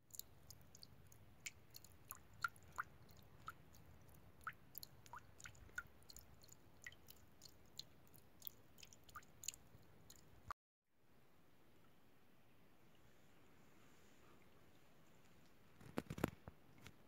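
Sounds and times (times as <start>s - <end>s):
stream trickling over stones: 0.0s - 10.5s
water gurgles and plinks: 0.0s - 10.5s.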